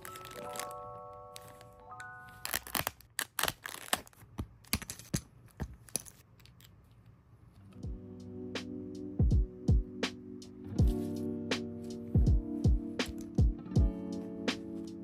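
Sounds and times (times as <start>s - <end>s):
plastic bags crinkling: 0.0s - 4.9s.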